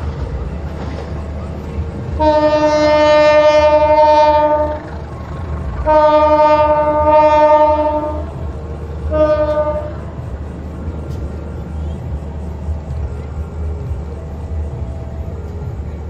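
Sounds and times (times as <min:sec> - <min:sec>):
low engine rumble: 0:00.0 - 0:16.0
locomotive horn blasts: 0:02.1 - 0:05.1, 0:05.8 - 0:10.2.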